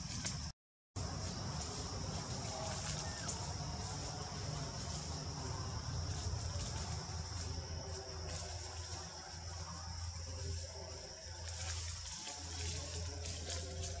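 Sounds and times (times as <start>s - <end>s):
insects droning: 0.0s - 14.0s
low background rumble: 1.0s - 12.1s.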